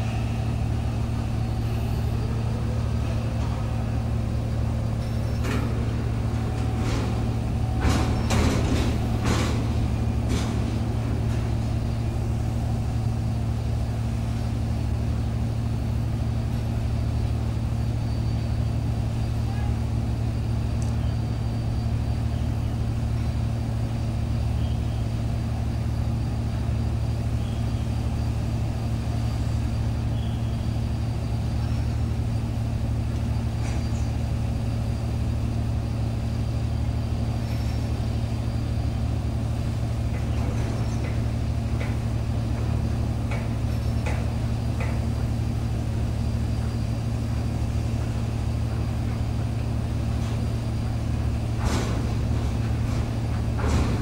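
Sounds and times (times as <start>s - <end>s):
ship diesel engine drone: 0.0s - 54.0s
faint clicks: 20.8s - 21.0s.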